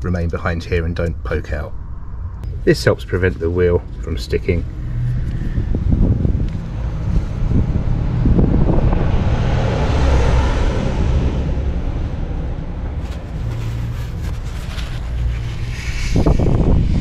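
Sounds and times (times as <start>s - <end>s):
low outdoor rumble: 0.0s - 17.0s
rushing noise: 4.7s - 17.0s
paper towel rustling: 13.0s - 15.7s.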